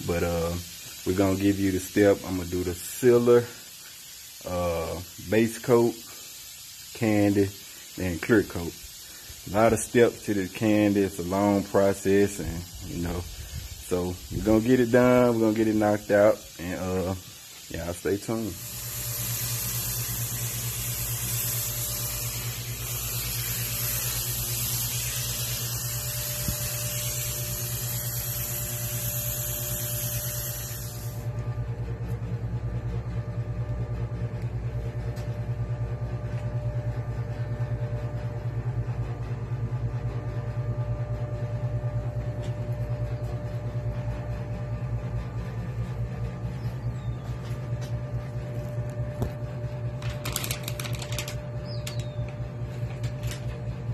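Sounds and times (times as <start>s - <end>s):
air spray gun hissing: 0.0s - 31.4s, 50.0s - 53.6s
low mechanical hum: 0.0s - 53.9s.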